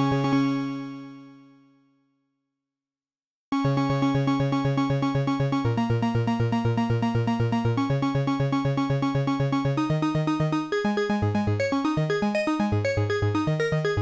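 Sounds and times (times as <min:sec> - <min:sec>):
synthesizer pulsing notes: 0:03.6 - 0:14.0.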